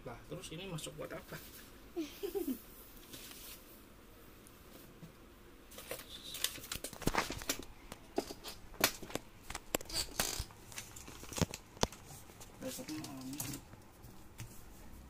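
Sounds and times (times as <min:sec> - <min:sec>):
paper rustling: 0:03.0 - 0:03.6, 0:05.7 - 0:14.8.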